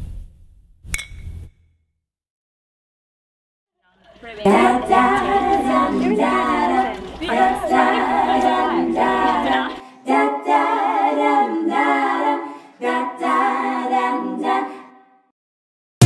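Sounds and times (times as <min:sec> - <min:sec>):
women singing a cappella harmony: 0:04.3 - 0:15.3.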